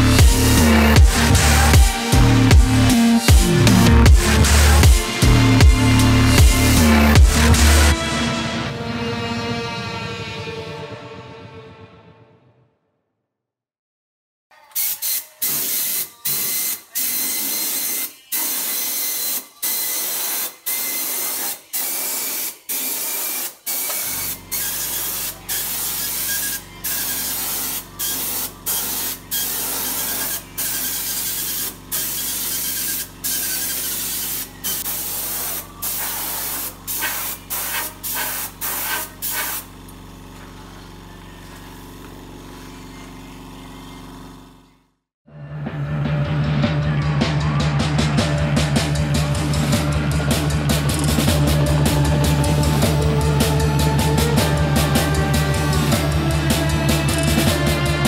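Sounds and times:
spray gun hissing bursts: 0:14.8 - 0:39.7.

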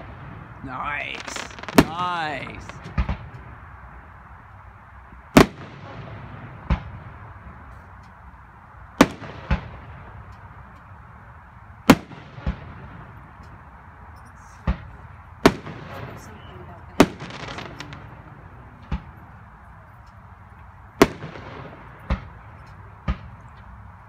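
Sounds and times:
fireworks bursting bangs: 0:00.0 - 0:03.7, 0:05.3 - 0:07.4, 0:09.0 - 0:10.3, 0:11.8 - 0:13.4, 0:14.6 - 0:19.4, 0:20.9 - 0:23.7.

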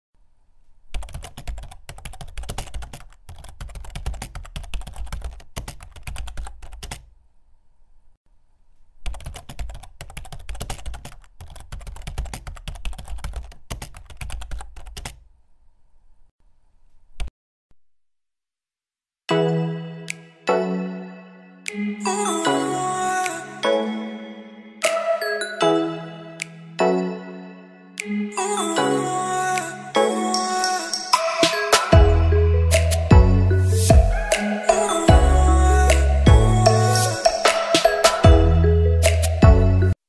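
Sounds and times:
computer keyboard typing: 0:00.9 - 0:07.1, 0:09.0 - 0:15.2.

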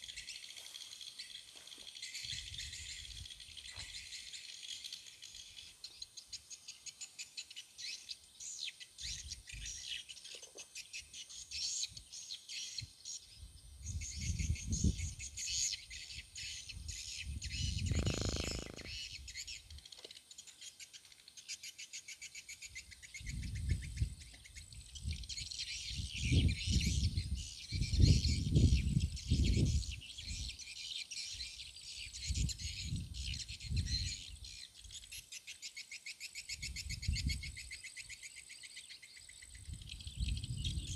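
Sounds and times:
birds chirping: 0:17.4 - 0:20.0
insects trilling: 0:17.6 - 0:20.5.

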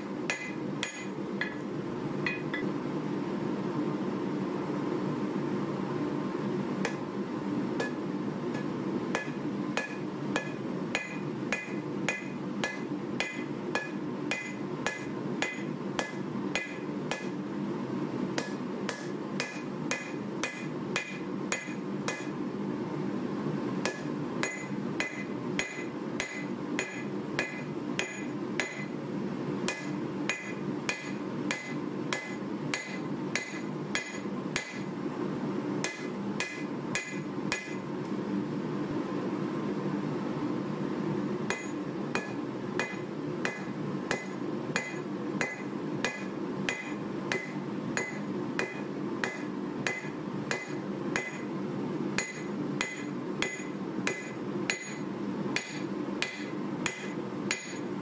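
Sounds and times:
hammer striking metal on anvil: 0:00.3 - 0:01.6, 0:02.2 - 0:02.7, 0:06.8 - 0:07.0, 0:07.8 - 0:17.4, 0:18.4 - 0:22.4, 0:23.8 - 0:29.0, 0:29.7 - 0:34.9, 0:35.8 - 0:37.8, 0:41.5 - 0:51.5, 0:52.2 - 0:57.9.

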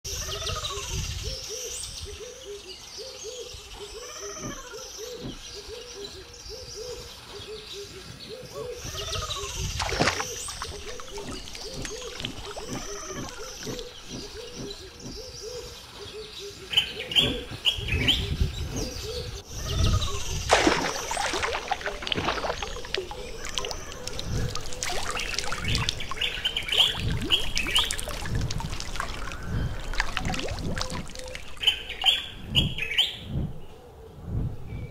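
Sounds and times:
birds calling and chirping: 0:00.1 - 0:34.9
sharp water splashes: 0:09.7 - 0:14.3, 0:20.4 - 0:32.4.

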